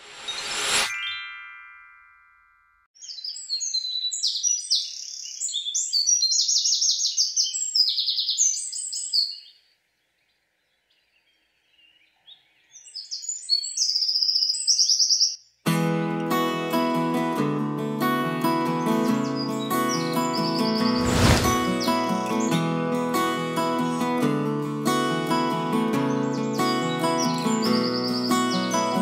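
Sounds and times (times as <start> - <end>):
ringing chime: 0.8 - 2.9
songbirds chirping and trilling: 3.0 - 15.6, 25.9 - 29.0
whoosh: 20.8 - 21.9.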